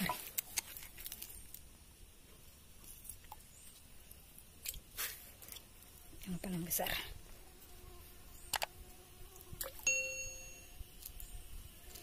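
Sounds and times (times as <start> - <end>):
rustling and squelching of wet roots: 0.0 - 7.8.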